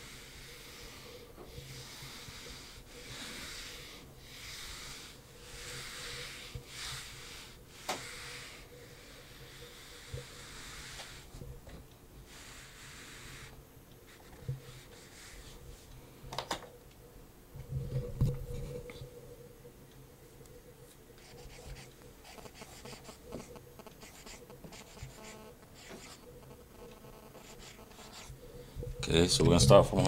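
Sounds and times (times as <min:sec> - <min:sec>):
marker squeaking on whiteboard: 0:21.2 - 0:28.4.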